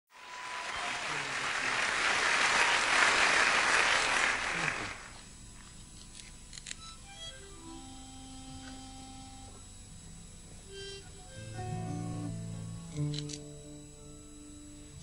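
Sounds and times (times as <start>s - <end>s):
audience applause: 0.1s - 5.2s.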